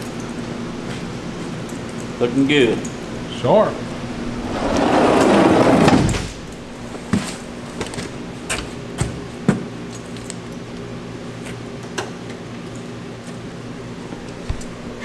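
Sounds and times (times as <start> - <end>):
rough rushing noise: 3.7 - 6.9.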